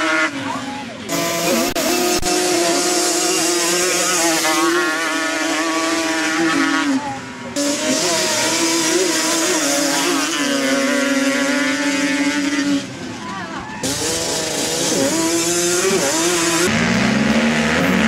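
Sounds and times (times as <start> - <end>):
quad engines revving: 0.0 - 18.0.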